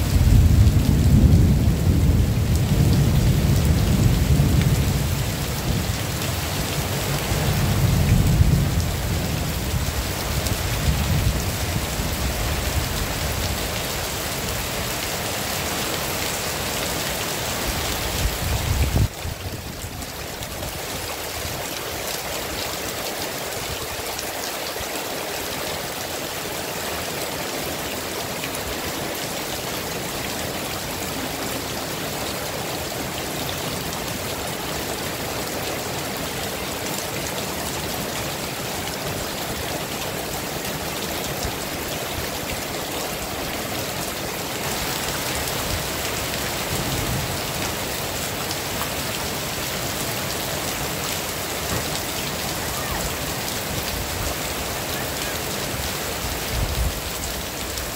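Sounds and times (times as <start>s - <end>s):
thunder rumbling: 0.0s - 5.9s, 6.8s - 10.0s
heavy rain falling: 0.0s - 57.9s.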